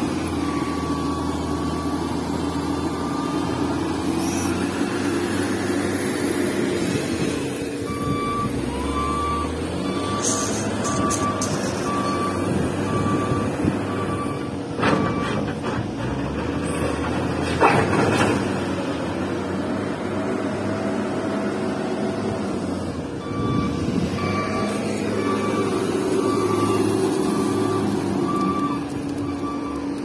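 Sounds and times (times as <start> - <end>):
heavy diesel machinery running: 0.0 - 30.0
reversing alarm beeping: 7.9 - 15.4, 23.2 - 30.0.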